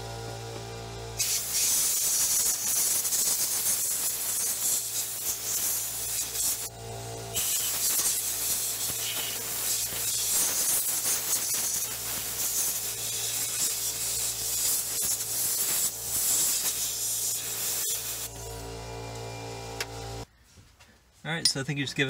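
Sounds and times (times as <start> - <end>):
compressed air hissing: 1.2 - 6.7, 7.3 - 18.4.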